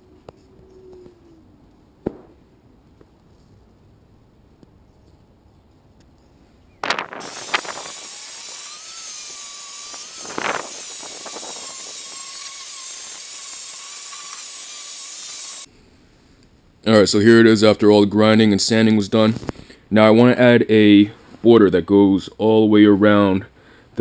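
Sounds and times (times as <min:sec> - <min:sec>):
angle grinder grinding steel: 0:07.2 - 0:15.7.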